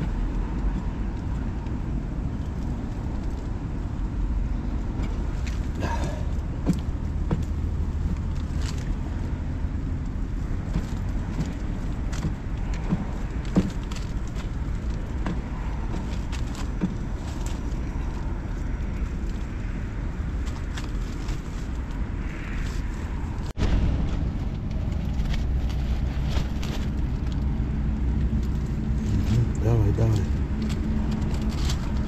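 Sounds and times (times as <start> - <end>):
low wind rumble: 0.0 - 32.0.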